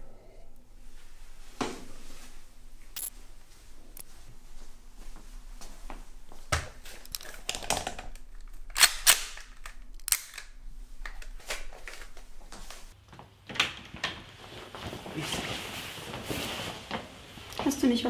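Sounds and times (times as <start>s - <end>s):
pistol metallic clicks: 8.7s - 10.5s.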